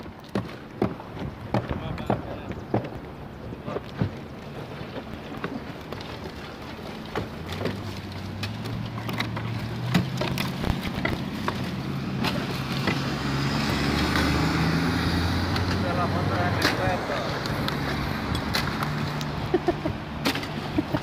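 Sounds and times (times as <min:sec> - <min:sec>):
vehicle engine humming: 0:06.8 - 0:21.0.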